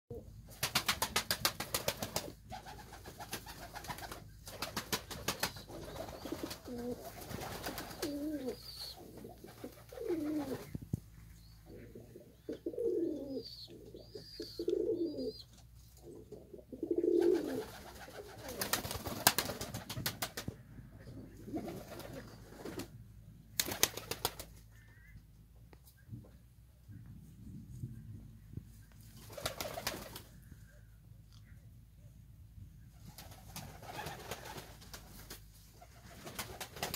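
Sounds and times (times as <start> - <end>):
pigeons cooing: 5.4 - 10.8, 11.4 - 18.9.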